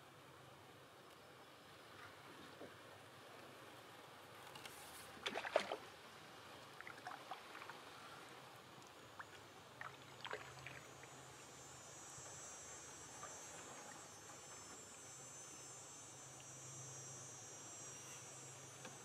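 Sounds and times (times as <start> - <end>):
paddle knocks and splashes: 5.2 - 5.8
insect trill: 8.9 - 19.0.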